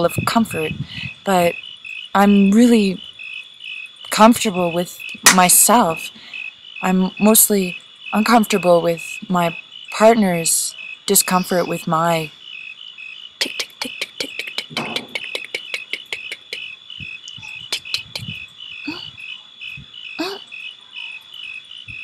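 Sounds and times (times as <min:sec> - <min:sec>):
crickets chirping: 0:00.0 - 0:22.0
sharp clicks: 0:13.4 - 0:18.5.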